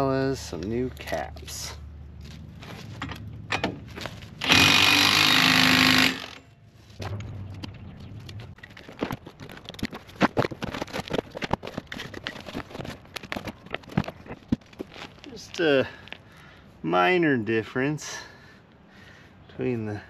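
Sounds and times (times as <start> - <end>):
cordless impact wrench running: 4.4 - 6.5
cardboard rustling: 8.4 - 15.4.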